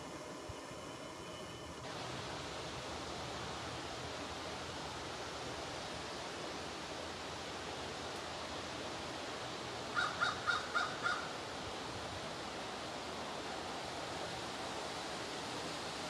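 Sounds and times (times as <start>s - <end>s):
steady rushing noise: 1.8s - 16.0s
harsh caw-like animal calls: 9.9s - 11.4s.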